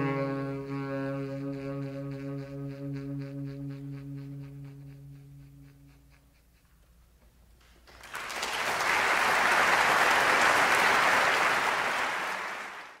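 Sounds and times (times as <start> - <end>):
music notes dying away: 0.0 - 5.6
audience applause: 7.9 - 13.0.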